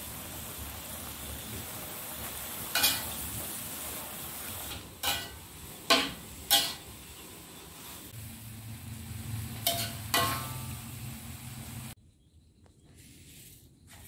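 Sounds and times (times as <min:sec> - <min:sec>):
food sizzling in wok: 0:00.0 - 0:12.0
metal spatula knocking on wok: 0:09.6 - 0:10.7.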